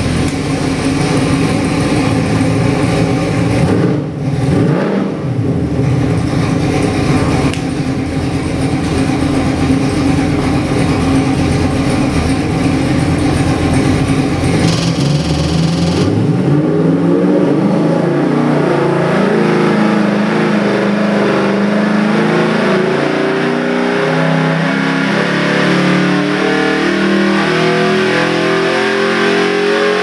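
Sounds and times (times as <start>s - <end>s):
engine idling: 0.0s - 4.5s, 5.7s - 16.4s.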